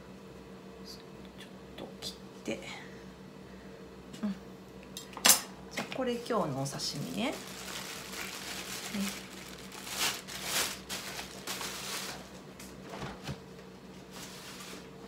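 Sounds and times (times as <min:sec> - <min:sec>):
cling film crinkling: 0:07.0 - 0:12.6.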